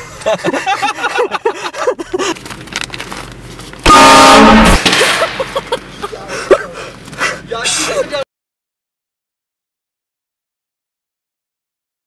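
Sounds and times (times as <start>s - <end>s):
train horn blasting: 3.9s - 4.8s.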